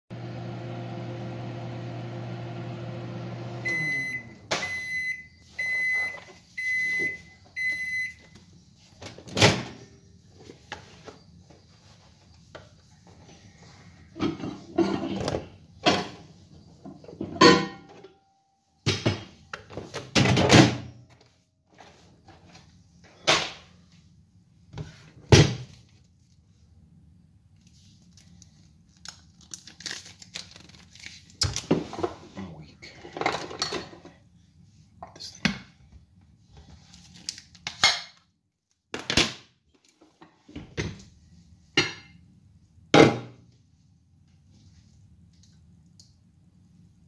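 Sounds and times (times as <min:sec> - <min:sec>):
microwave oven humming: 0:00.1 - 0:06.0.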